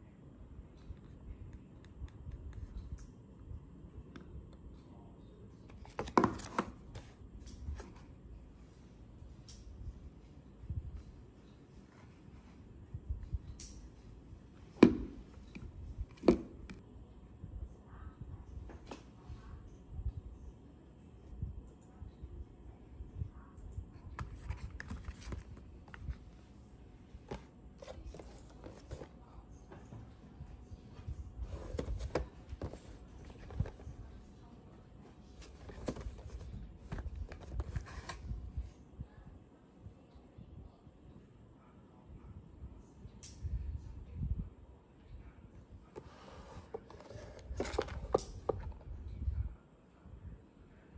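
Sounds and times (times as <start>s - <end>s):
jar rustling in hand: 35.4s - 38.2s.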